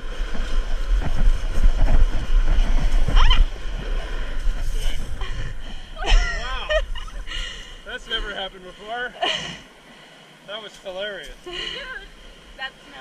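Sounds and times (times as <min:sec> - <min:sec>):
wind buffeting microphone: 0:00.0 - 0:09.0.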